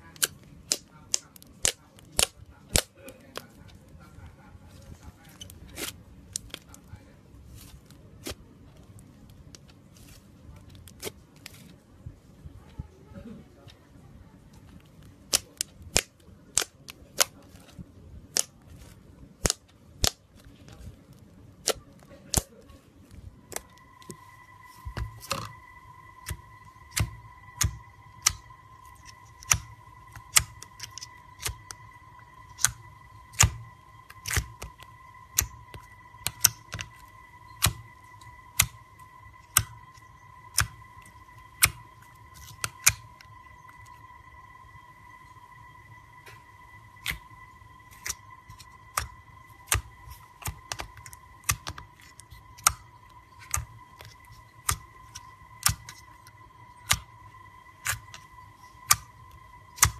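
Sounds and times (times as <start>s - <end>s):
steady high whine: 0.0s - 59.9s
slime popping clicks: 26.2s - 31.8s, 32.6s - 37.0s, 47.0s - 47.2s.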